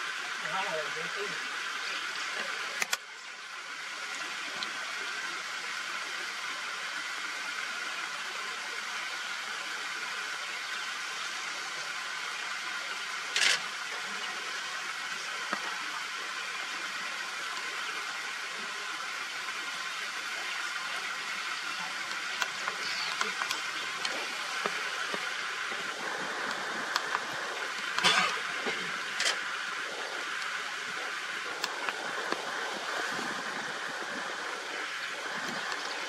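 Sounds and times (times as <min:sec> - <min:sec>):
outdoor ambient hiss: 0:00.0 - 0:36.0
faint clicks: 0:22.0 - 0:28.1.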